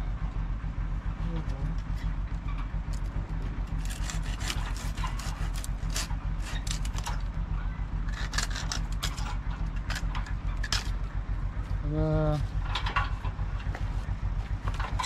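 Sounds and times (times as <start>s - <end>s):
hand saw cutting branch: 3.7s - 7.1s.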